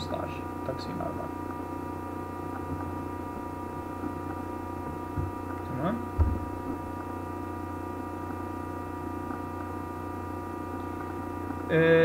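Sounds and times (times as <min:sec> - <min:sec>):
electrical mains hum: 0:00.0 - 0:12.0
low thump: 0:06.2 - 0:06.8.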